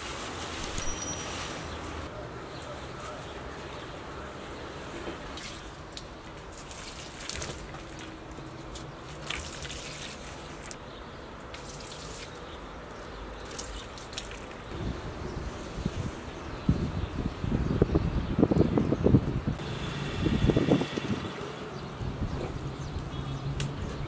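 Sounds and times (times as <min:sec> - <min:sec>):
water trickling onto plants: 0:05.3 - 0:14.8.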